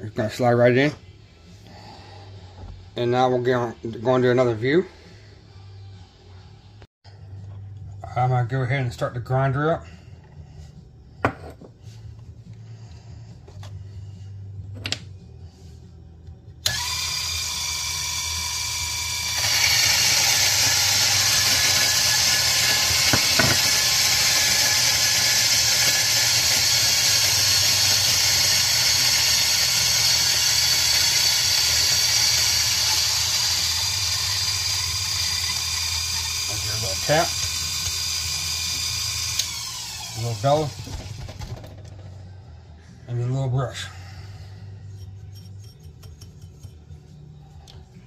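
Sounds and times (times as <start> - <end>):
coffee grinder motor whining: 16.6 - 41.9
coffee beans grinding: 17.2 - 39.6.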